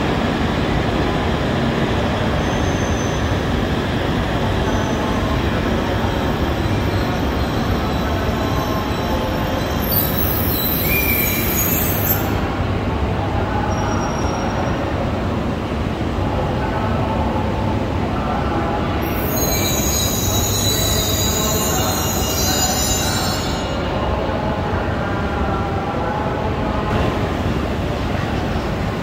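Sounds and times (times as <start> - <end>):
train wheel squeal: 2.2 - 3.6, 4.4 - 12.5, 13.6 - 14.8, 19.0 - 24.2.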